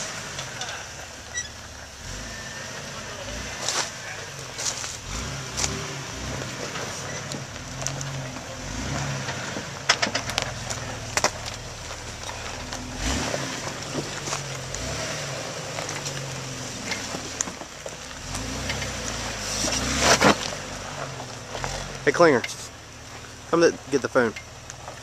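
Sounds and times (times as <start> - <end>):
car engine revving at low speed: 0.0 - 25.0.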